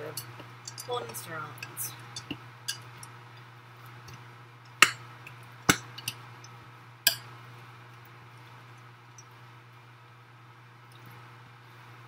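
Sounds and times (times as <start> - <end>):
utensil clinking against mixing bowl: 0.0 - 3.0.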